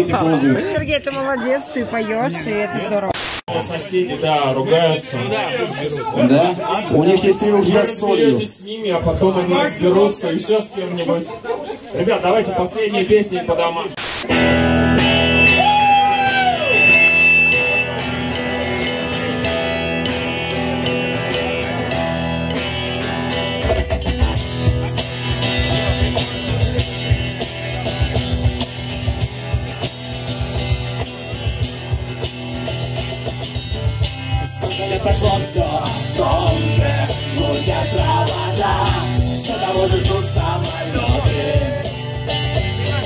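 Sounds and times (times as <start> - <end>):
rock band with guitars: 14.0 - 43.0
steady beat with bass: 24.1 - 43.0
person singing: 34.4 - 42.2.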